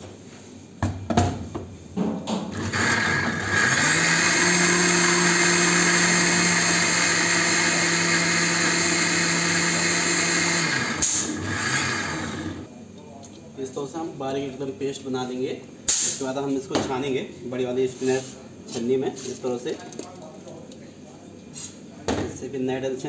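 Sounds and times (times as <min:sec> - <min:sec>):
mixer grinder motor running: 0:02.5 - 0:12.7.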